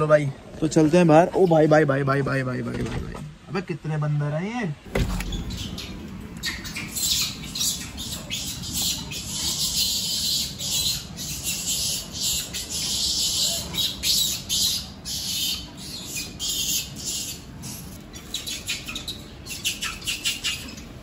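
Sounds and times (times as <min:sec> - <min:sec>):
harsh animal squawks and chirps: 0:05.0 - 0:21.0.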